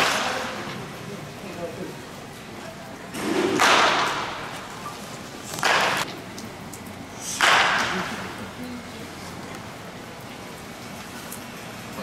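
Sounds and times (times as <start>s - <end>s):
baseball bat hits: 3.2s - 4.6s, 5.5s - 6.1s, 7.4s - 8.2s.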